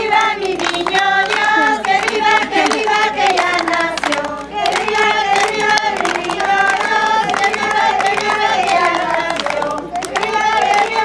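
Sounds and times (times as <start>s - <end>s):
hand clapping: 0.0s - 11.0s
voices singing a carol: 0.0s - 11.0s.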